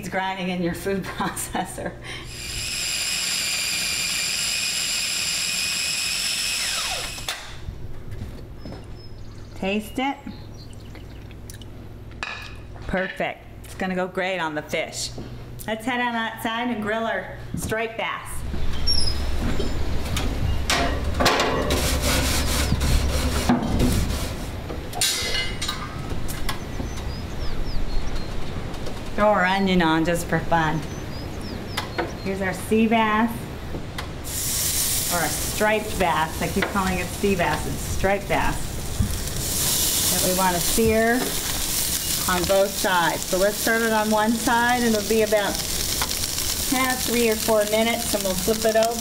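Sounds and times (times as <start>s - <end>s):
food processor motor whining: 2.3s - 7.4s.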